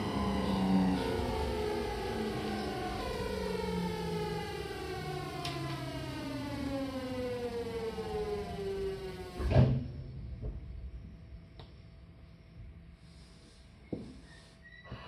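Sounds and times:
train inverter whining: 0:00.0 - 0:11.7
faint steady hum: 0:00.0 - 0:15.0.

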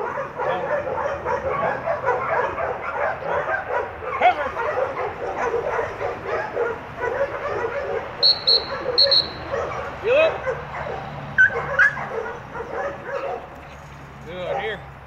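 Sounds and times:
many dogs barking and yipping: 0:00.0 - 0:13.6, 0:14.3 - 0:14.9
dog whistle blasts: 0:08.2 - 0:09.5.

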